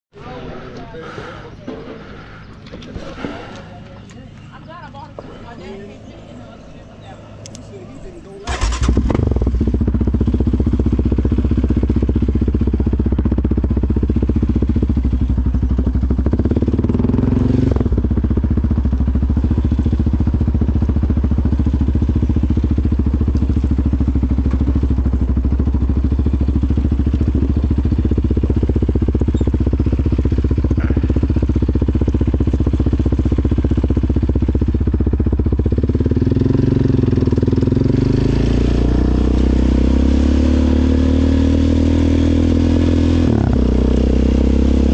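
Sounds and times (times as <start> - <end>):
atv engine running: 2.2 - 44.9.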